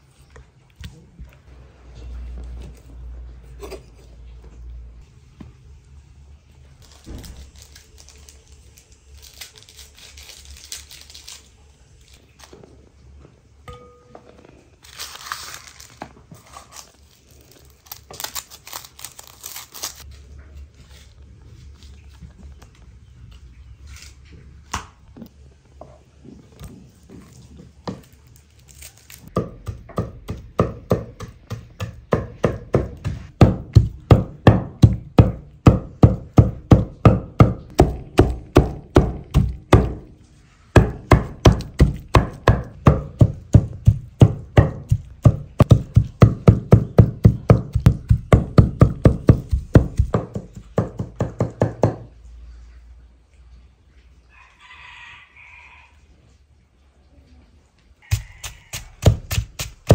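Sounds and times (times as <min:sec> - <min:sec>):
knife chopping on board: 0:29.4 - 0:40.1, 0:40.8 - 0:52.0, 0:58.1 - 0:59.9.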